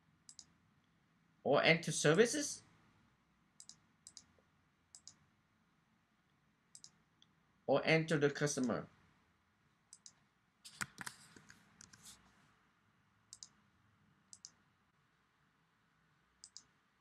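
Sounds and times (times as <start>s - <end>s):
computer mouse clicks: 0.3s - 0.5s, 3.6s - 5.2s, 6.7s - 7.3s, 9.9s - 12.2s, 13.3s - 13.6s, 14.3s - 14.6s, 16.4s - 16.7s.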